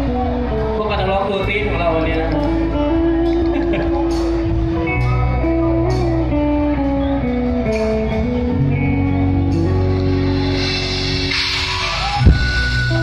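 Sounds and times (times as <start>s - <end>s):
guitar melody: 0.0s - 13.0s
held bass notes: 0.0s - 13.0s
drums and cymbal hits: 9.5s - 13.0s.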